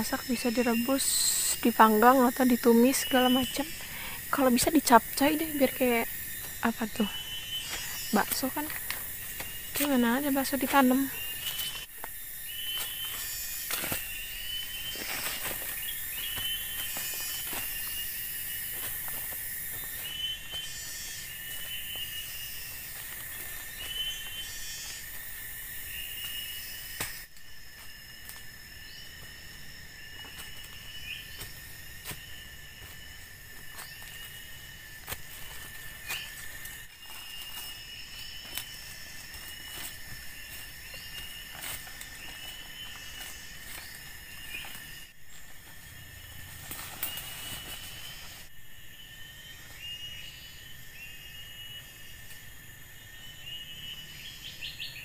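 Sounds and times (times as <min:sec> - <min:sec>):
insects trilling and chirping: 0:00.0 - 0:55.0
footsteps rustling through dry leaves: 0:12.6 - 0:25.4, 0:30.0 - 0:48.5.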